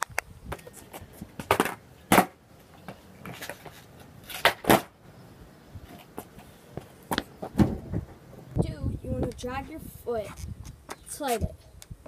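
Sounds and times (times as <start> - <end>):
skateboard clacking on asphalt: 0.0 - 5.0, 5.9 - 8.2.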